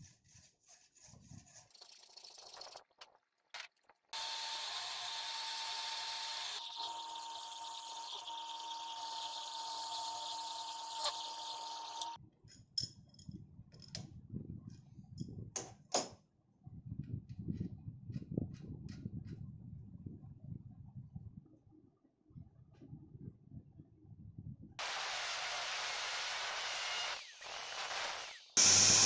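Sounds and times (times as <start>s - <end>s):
power tool cutting steel: 4.2s - 12.2s, 24.8s - 29.0s.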